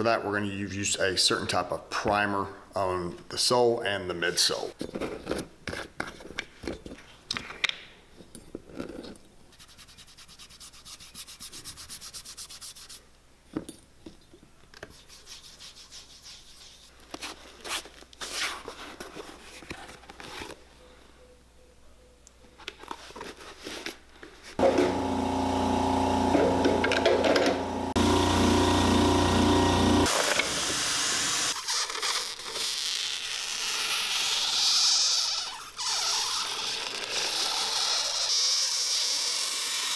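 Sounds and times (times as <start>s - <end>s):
rubbing and scraping shoe sole: 8.6s - 13.1s, 14.8s - 20.6s
machine motor running: 24.6s - 31.5s
high sanding hiss: 28.0s - 31.6s.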